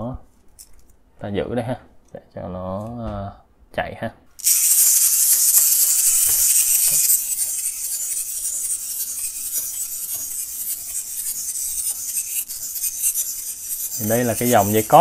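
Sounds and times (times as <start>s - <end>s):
clockwork motor whirring: 4.4s - 15.0s.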